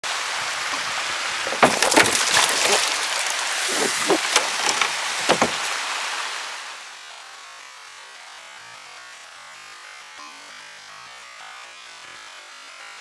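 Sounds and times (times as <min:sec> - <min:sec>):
water spraying and splashing: 0:00.1 - 0:06.6.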